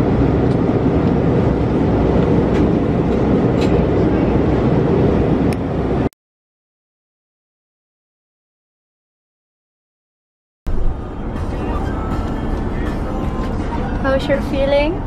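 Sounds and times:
jet airliner cabin roar: 0.0 - 6.1, 10.7 - 15.0.

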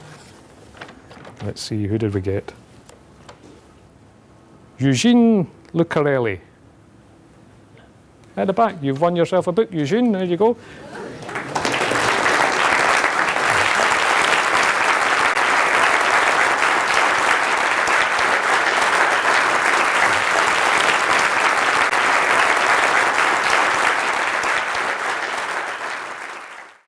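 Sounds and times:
audience applauding: 10.9 - 26.9.

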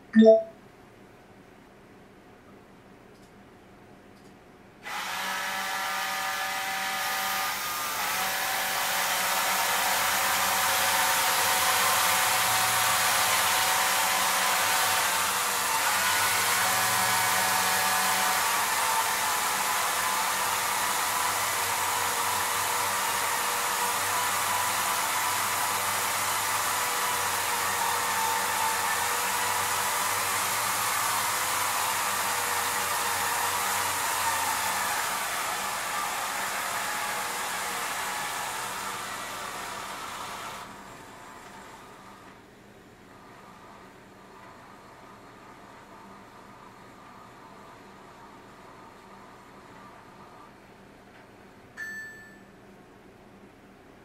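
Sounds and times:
motors whirring and whining: 4.9 - 42.4.

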